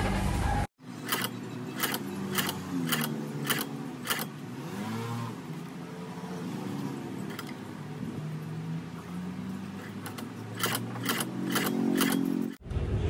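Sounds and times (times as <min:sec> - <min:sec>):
sewing machine whirring: 0:00.9 - 0:04.3, 0:09.8 - 0:12.6
sewing machine needle clacking: 0:01.0 - 0:04.3, 0:09.8 - 0:12.6.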